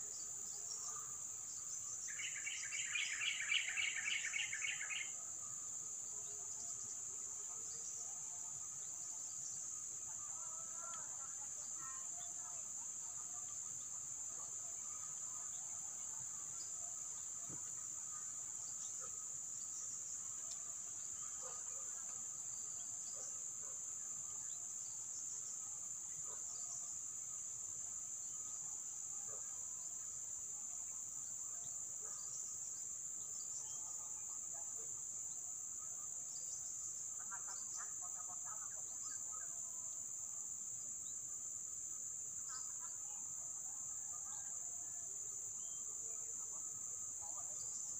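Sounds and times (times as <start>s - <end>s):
faint chirps: 0.0s - 5.2s.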